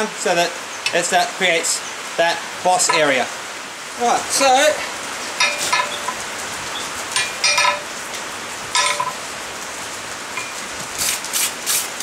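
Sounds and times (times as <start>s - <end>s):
hammer striking hot steel on anvil: 5.4s - 6.2s, 7.2s - 7.9s, 8.8s - 9.2s.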